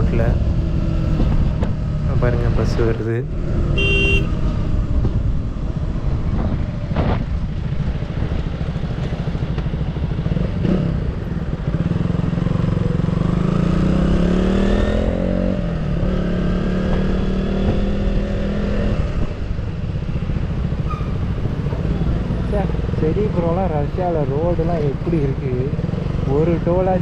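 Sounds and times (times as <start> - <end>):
wind and road rumble: 0.0 - 27.0
motorcycle engine running: 3.8 - 17.9.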